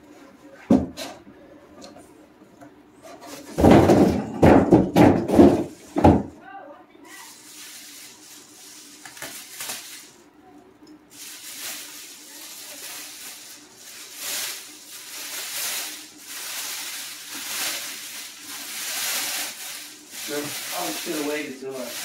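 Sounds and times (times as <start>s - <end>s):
plastic bag rustling: 7.2s - 10.2s, 11.1s - 22.0s.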